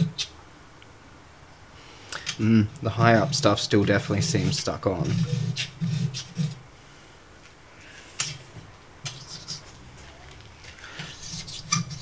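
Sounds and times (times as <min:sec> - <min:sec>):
razor blade scraping glass: 0:03.1 - 0:06.6, 0:09.0 - 0:09.7, 0:11.0 - 0:12.0.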